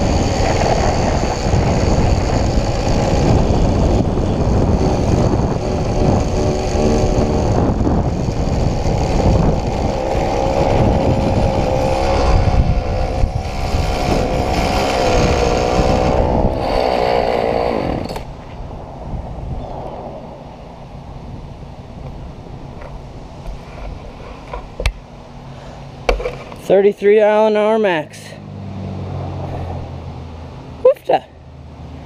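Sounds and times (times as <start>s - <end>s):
two-stroke engine running flat out: 0.0s - 18.3s
wind on microphone: 0.0s - 22.8s.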